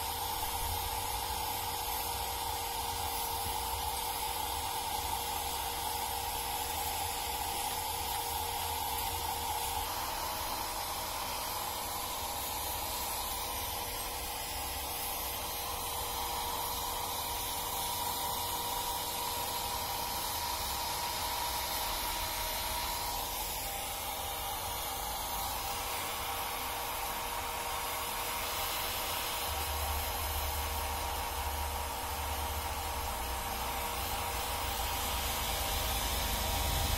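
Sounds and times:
hair dryer running: 0:00.0 - 0:36.9.

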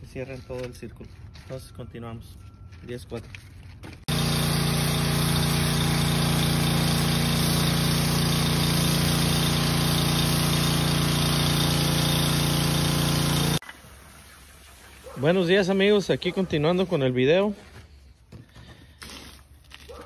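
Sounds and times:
water spray hissing on concrete: 0:04.1 - 0:16.2
pressure washer engine droning: 0:04.1 - 0:16.7.

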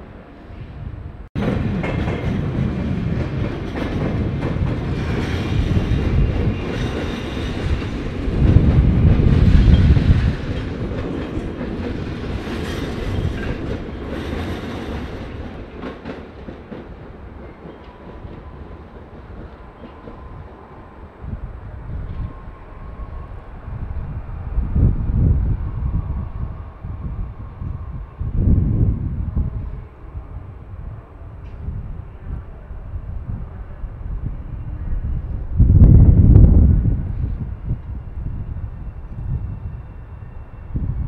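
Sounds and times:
train wheels on rails: 0:01.4 - 0:22.8.

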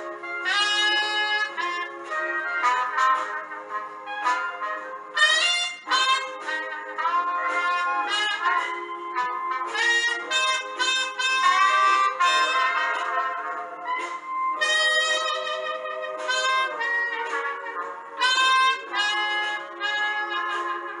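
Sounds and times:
band accompaniment: 0:00.0 - 0:21.0
trumpet playing slow jazz melody: 0:00.0 - 0:21.0.

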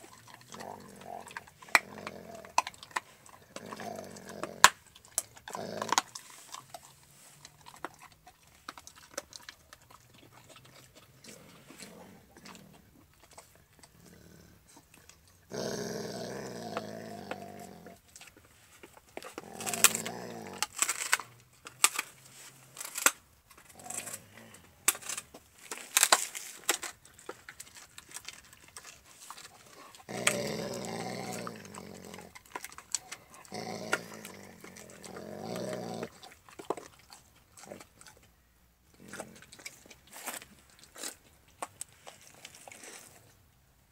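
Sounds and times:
dog growling: 0:00.0 - 0:06.3, 0:09.8 - 0:14.8, 0:15.4 - 0:18.0, 0:19.3 - 0:20.8, 0:29.5 - 0:38.2, 0:38.9 - 0:39.8
dog crunching bone: 0:00.0 - 0:43.5.

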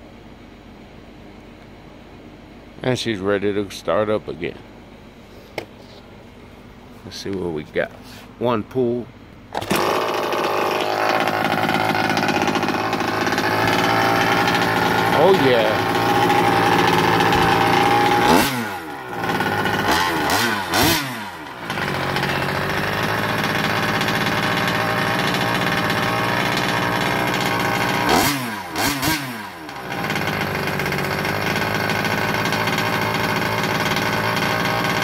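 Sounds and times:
rc car fuel engine revving: 0:09.5 - 0:35.0.

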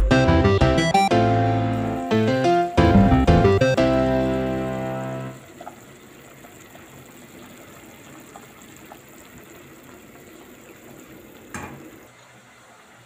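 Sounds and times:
pot of water boiling: 0:04.0 - 0:13.0.

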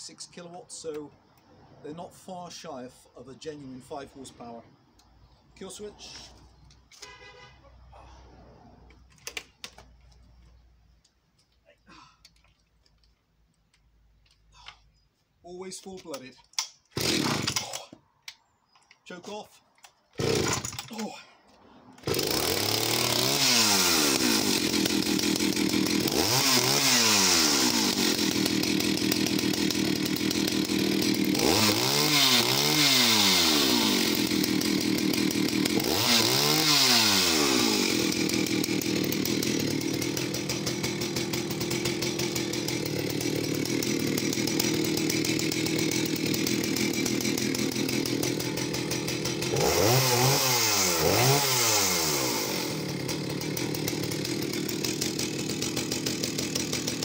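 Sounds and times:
chainsaw revving: 0:17.0 - 0:17.8, 0:20.2 - 0:21.2, 0:21.9 - 0:57.0.

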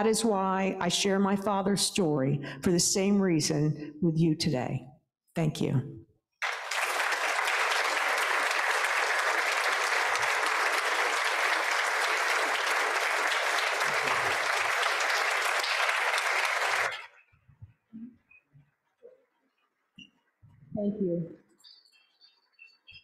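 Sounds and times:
audience applauding: 0:06.4 - 0:17.2.

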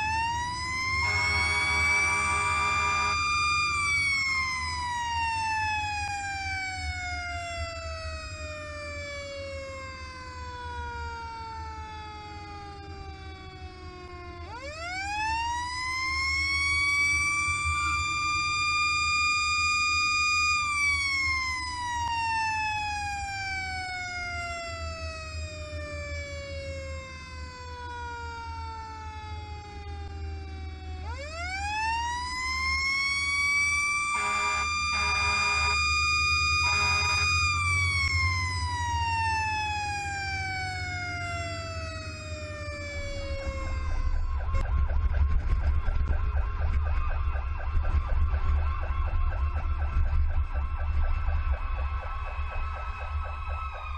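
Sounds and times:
fast warbling siren: 0:00.0 - 0:53.9
fire engine siren wailing: 0:00.0 - 0:53.9
truck engine rumble: 0:00.0 - 0:53.9
horn blasts: 0:00.9 - 0:03.6, 0:17.7 - 0:18.2, 0:34.1 - 0:37.6.

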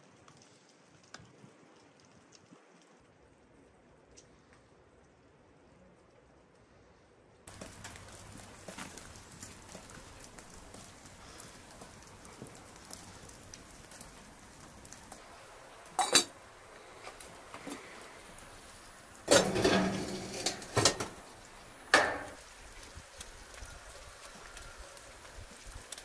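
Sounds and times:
pot clanking on metal stove: 0:16.0 - 0:16.3, 0:19.3 - 0:21.2, 0:21.9 - 0:22.4
cooking pot knocking and clinking: 0:19.3 - 0:21.2, 0:21.9 - 0:22.4.

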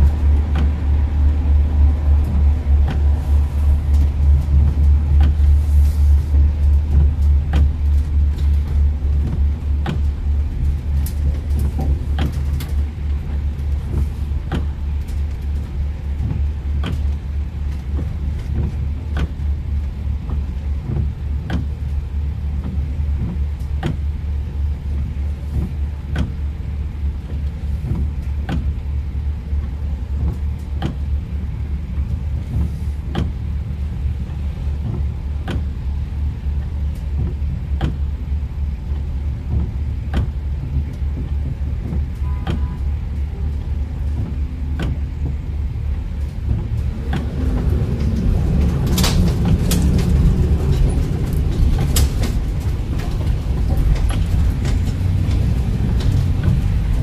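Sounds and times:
car road and engine rumble: 0:00.0 - 0:57.0
windshield wipers clicking: 0:00.0 - 0:57.0
tyre hiss on wet road: 0:05.4 - 0:06.4.

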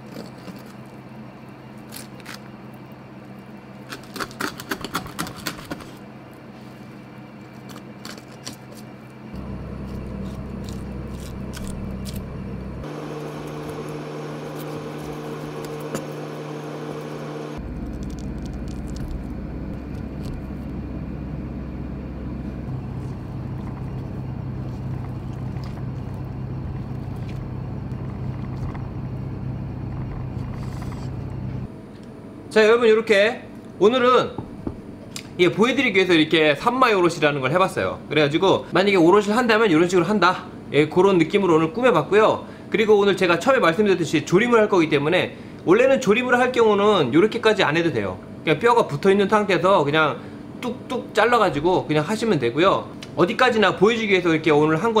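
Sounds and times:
knife scraping fish bones: 0:00.0 - 0:01.0, 0:03.8 - 0:06.0, 0:07.4 - 0:09.0, 0:09.8 - 0:12.2.

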